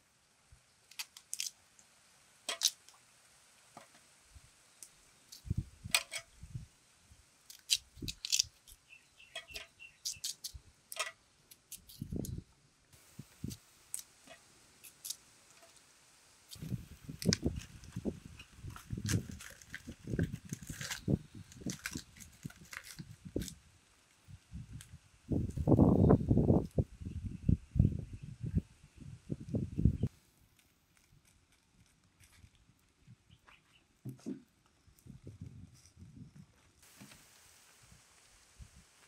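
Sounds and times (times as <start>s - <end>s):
knife cutting through root: 7.5s - 8.8s.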